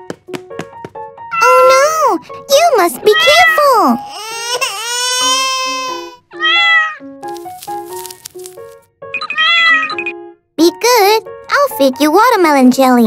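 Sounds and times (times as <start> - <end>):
light background music: 0.0 - 13.0
cat meowing: 6.3 - 7.0, 9.3 - 10.0.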